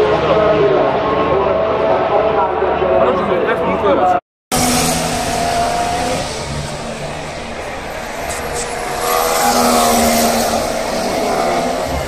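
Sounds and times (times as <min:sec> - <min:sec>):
background engine noise: 0:00.0 - 0:12.0
racing car engine passing: 0:04.5 - 0:12.0.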